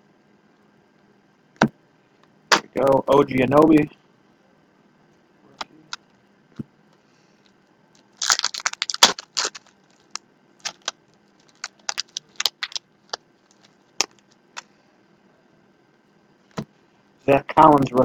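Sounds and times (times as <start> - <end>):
packaging crinkling: 8.0 - 14.7.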